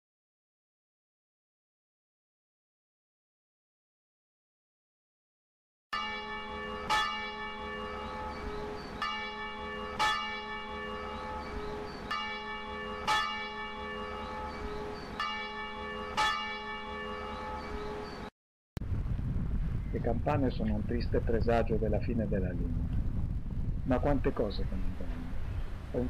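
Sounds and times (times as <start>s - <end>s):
church bells ringing: 6.0s - 18.3s.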